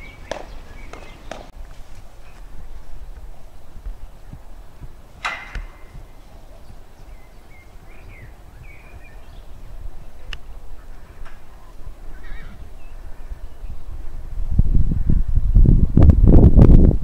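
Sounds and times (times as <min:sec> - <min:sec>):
wind rumbling on microphone: 0:00.0 - 0:17.0
sharp click: 0:05.2 - 0:06.0
faint bird chirps: 0:05.7 - 0:11.0.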